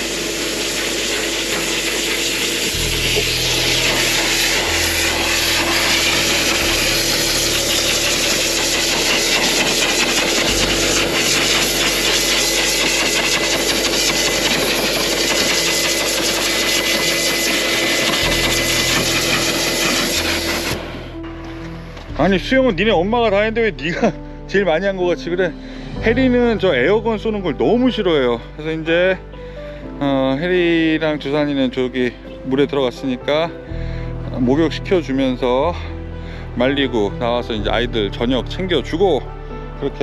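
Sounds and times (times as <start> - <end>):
pet blower rushing air: 0.0 - 21.4.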